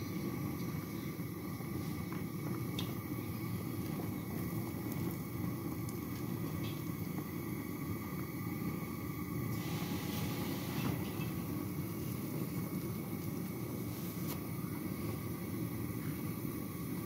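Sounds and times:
pot simmering with low rumble: 0.0s - 17.0s.

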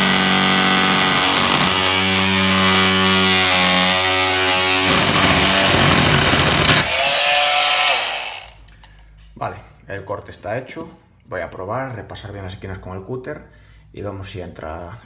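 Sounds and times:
multi-tool buzzing through plastic: 0.0s - 8.6s
plastic trunking vibrating: 4.0s - 6.9s.

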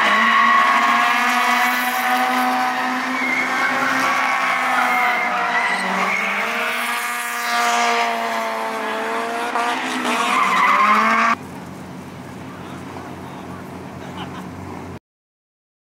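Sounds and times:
tyres squealing: 0.0s - 7.0s, 9.6s - 11.4s
car engine revving hard: 0.0s - 11.4s.

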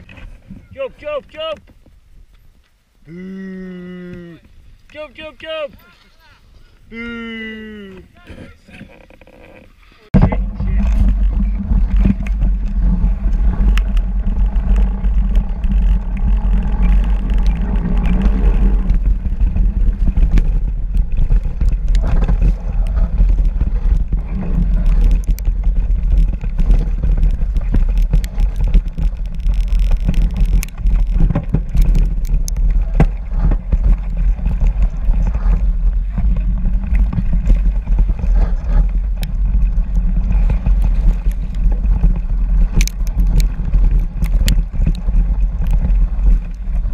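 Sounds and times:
bike riding rumble: 0.0s - 46.9s
wind: 0.0s - 46.9s
bike clicks and knocks: 10.2s - 46.9s.

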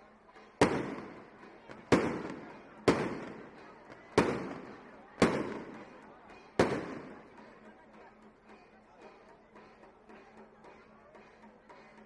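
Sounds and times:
firework bangs: 0.6s - 5.9s, 6.6s - 7.2s.

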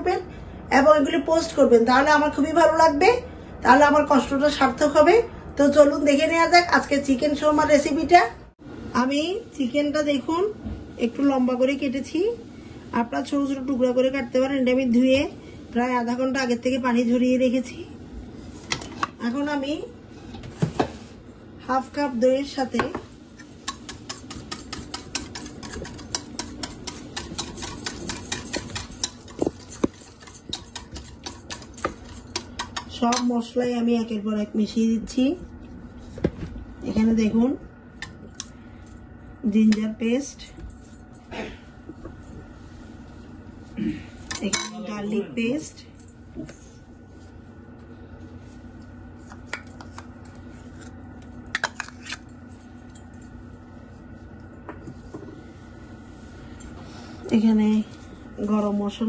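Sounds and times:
steady low hum: 0.0s - 59.0s
whisk clicking against bowl: 23.4s - 33.2s.

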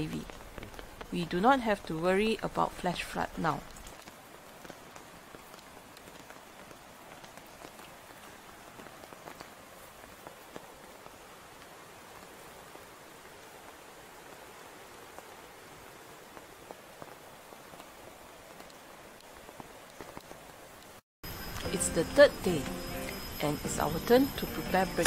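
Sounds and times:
rain drop ticks: 0.0s - 12.3s, 17.0s - 21.7s
rain hissing: 0.0s - 25.0s.

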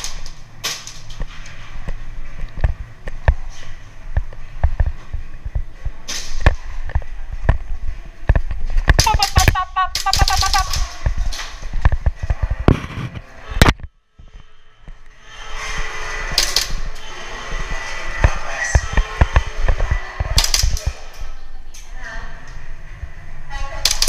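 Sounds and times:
person shouting: 9.0s - 10.9s.

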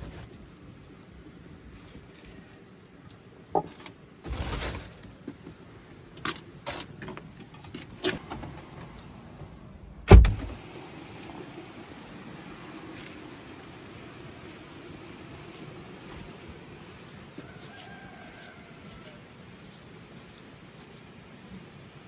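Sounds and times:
rustling of handled things: 0.0s - 9.1s, 14.4s - 22.0s
door banging shut: 10.0s - 10.6s.

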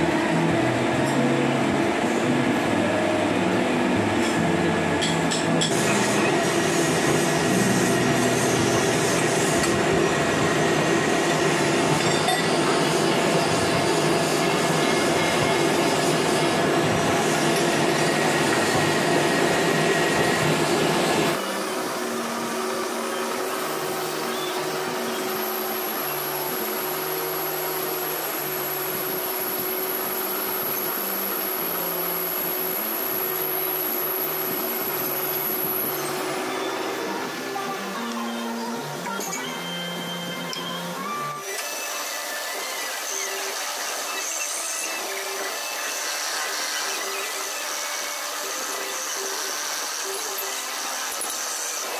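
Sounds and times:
workshop machinery humming: 0.0s - 51.9s
metal lathe whirring: 5.0s - 38.1s.

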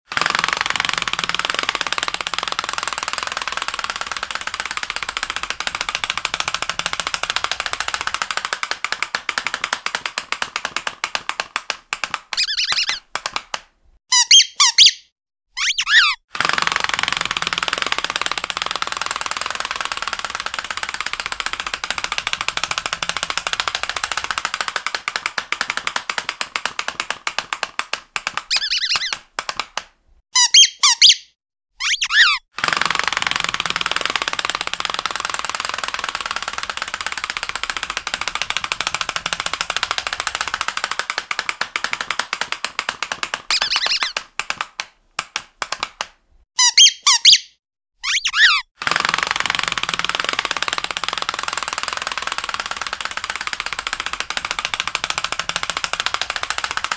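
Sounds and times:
squeaky dog toy squeaking: 12.4s - 13.0s, 14.1s - 16.2s, 28.5s - 29.1s, 30.4s - 32.4s, 43.5s - 44.2s, 46.6s - 48.7s.

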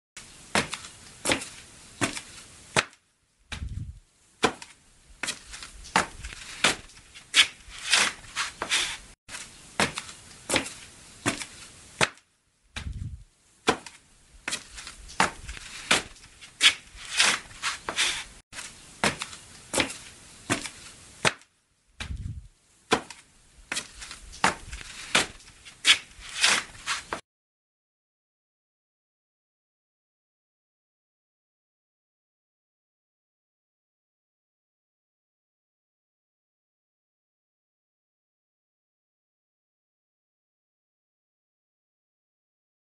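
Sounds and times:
short low thud: 3.5s - 4.0s, 12.8s - 13.2s, 22.0s - 22.4s.

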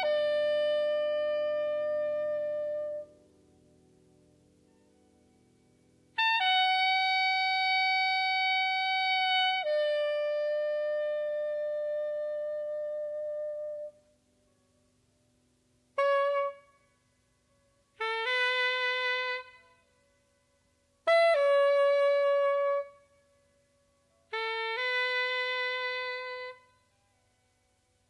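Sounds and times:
jazz horn long notes: 0.0s - 3.2s, 6.1s - 14.0s, 15.9s - 16.8s, 17.9s - 19.9s, 21.0s - 23.1s, 24.3s - 26.7s.

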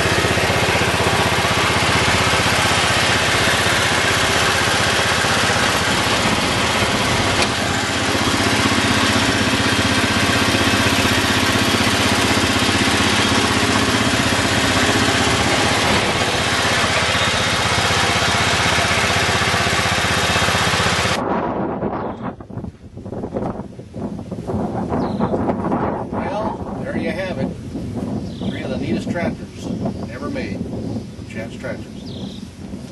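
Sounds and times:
tractor engine running: 0.0s - 22.3s.

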